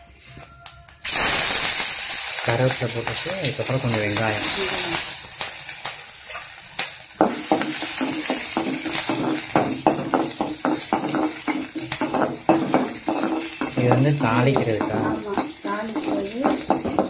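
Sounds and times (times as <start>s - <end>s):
onions sizzling in oil: 1.0s - 17.0s
spoon scraping pan: 7.2s - 17.0s.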